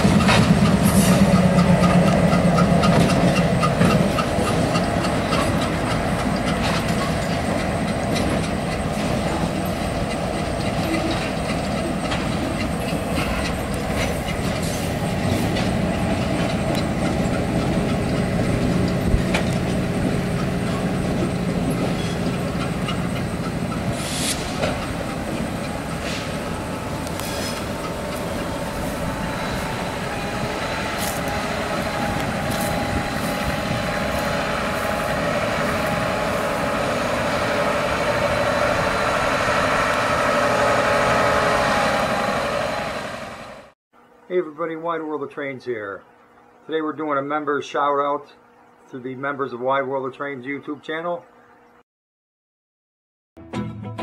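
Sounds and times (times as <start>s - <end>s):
freight train cars rolling: 0.0s - 43.7s.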